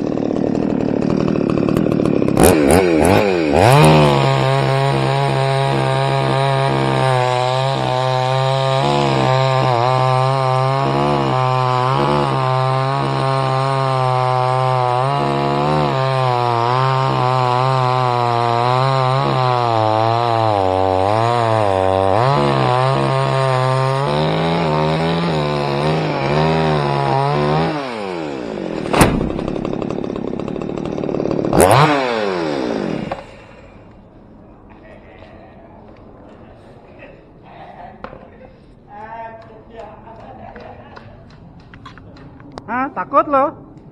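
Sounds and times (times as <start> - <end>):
chainsaw cutting wood: 0.0 - 34.1
sharp knocks: 28.8 - 30.0.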